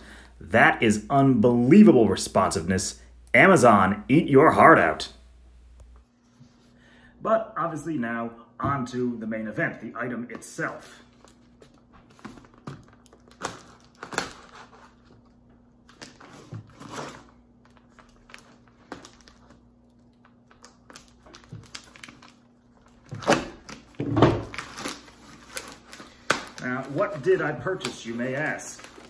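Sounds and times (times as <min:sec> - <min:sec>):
packing material rustling and tearing: 0:11.1 - 0:29.0.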